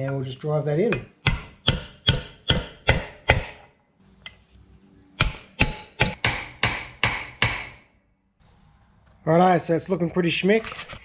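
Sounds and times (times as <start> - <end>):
hammer striking steel punch: 0.9 - 3.6, 5.2 - 7.8.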